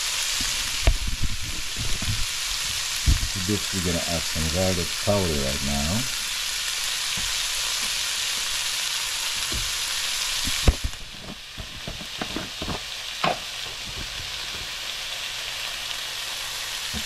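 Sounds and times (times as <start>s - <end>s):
vegetables sizzling in oil: 0.0s - 17.0s
spatula scraping a pan: 10.4s - 15.1s.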